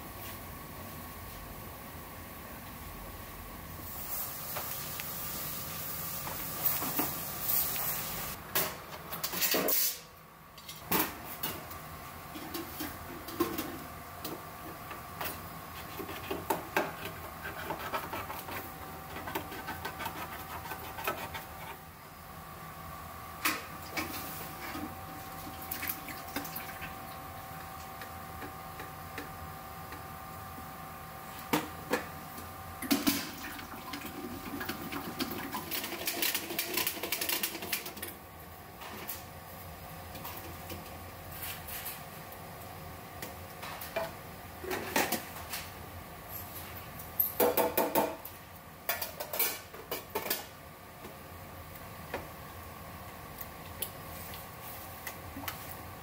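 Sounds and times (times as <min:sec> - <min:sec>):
steady hum: 0:10.0 - 0:35.6
liquid pouring and sloshing: 0:25.2 - 0:27.1.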